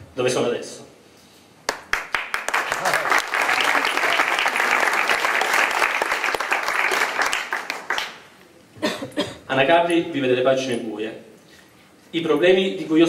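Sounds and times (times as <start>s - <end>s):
audience applauding: 1.7s - 8.3s.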